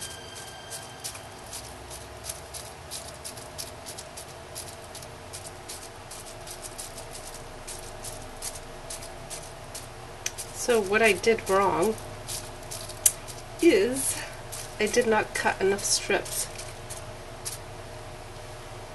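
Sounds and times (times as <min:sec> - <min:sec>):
bubble wrap crinkling clicks: 0:11.9 - 0:13.5.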